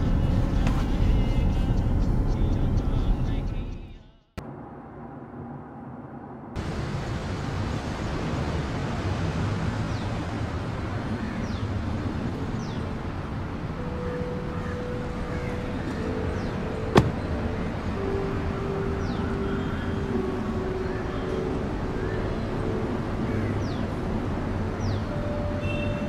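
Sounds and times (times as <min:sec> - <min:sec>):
road traffic noise: 0:00.0 - 0:03.8, 0:06.6 - 0:26.0
sharp knock: 0:16.9 - 0:17.2.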